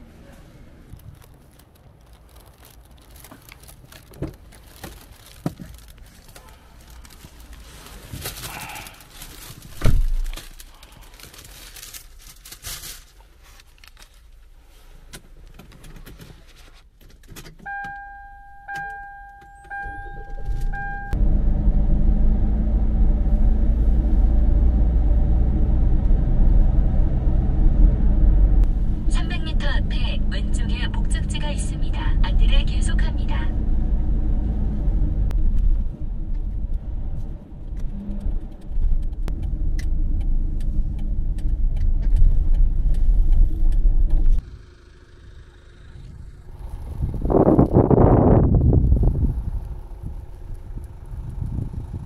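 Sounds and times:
minivan engine rumbling: 0.0 - 52.0
loud thump: 9.8 - 10.3
electronic chime beeps: 17.7 - 21.2.

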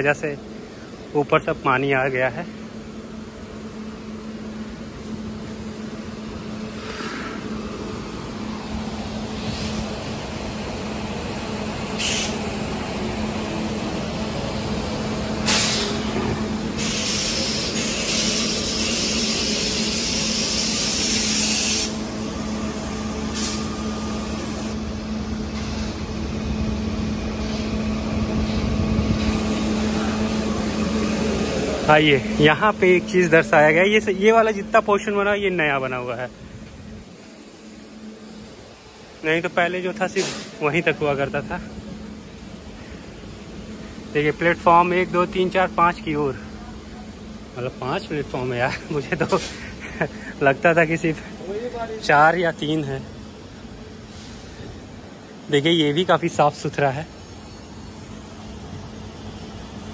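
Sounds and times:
locomotive idling hum: 0.0 - 59.9
air hissing: 5.9 - 24.8, 27.2 - 46.5, 48.7 - 55.2.

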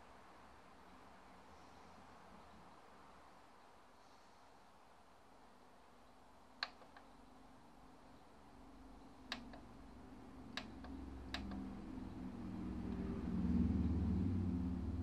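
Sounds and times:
low hum: 8.6 - 15.0
faint sharp ticks: 10.5 - 11.9.

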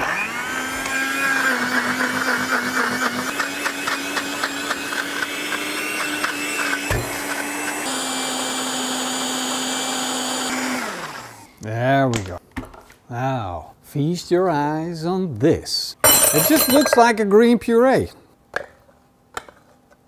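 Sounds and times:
blender running: 0.0 - 11.5
pieces clattering in blender cup: 16.1 - 17.1.

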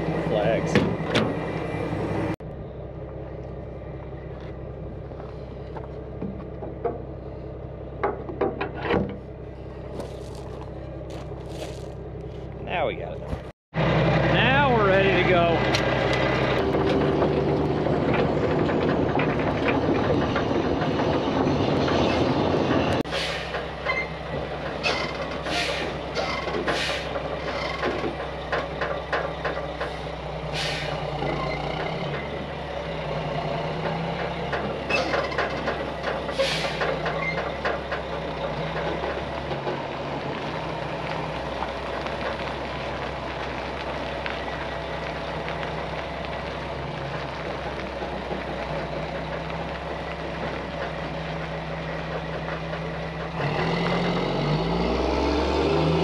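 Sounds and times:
diesel truck engine idling: 0.0 - 53.4
air brake hisses: 23.1 - 23.6, 25.4 - 26.0, 26.7 - 27.2, 30.5 - 31.0, 36.3 - 36.9.

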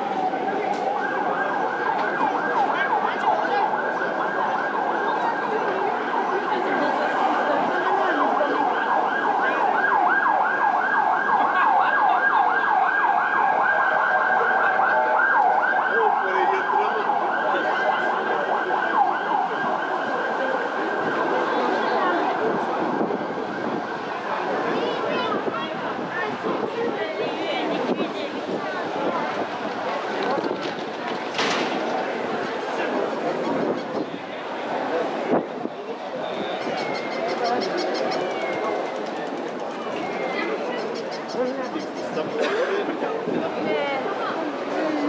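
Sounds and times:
siren yelping: 0.0 - 24.2, 36.6 - 38.9.

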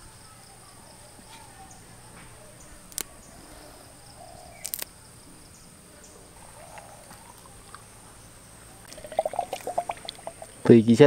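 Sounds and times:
insects chirring: 0.0 - 11.0
sharp clicks: 4.6 - 4.9.

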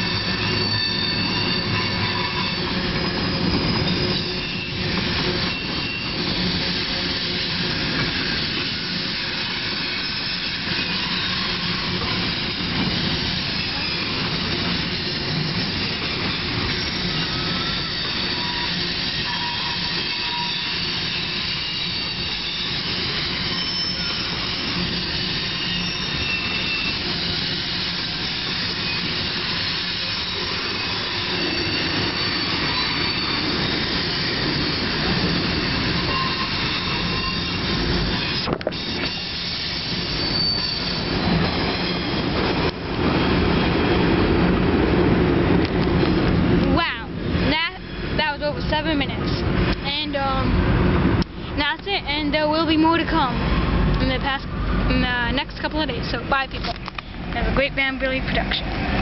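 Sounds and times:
faint high-pitched wheel squeals: 0.0 - 42.4
steel wheels rumbling on rail: 0.0 - 59.0.

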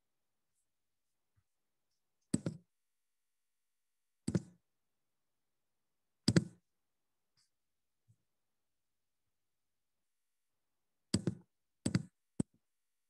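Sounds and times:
laptop taps: 2.3 - 2.7, 4.2 - 4.6, 6.2 - 6.6, 11.1 - 12.6.

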